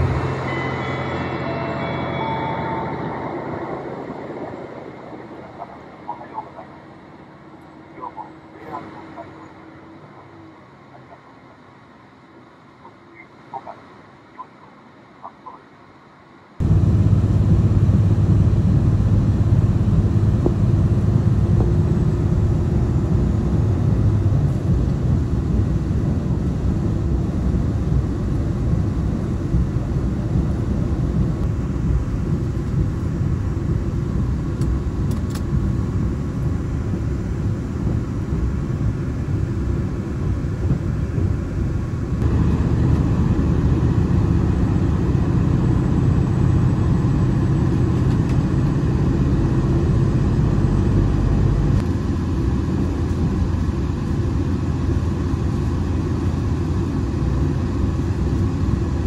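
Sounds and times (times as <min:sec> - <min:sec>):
train cabin rumble: 0:16.6 - 0:52.2.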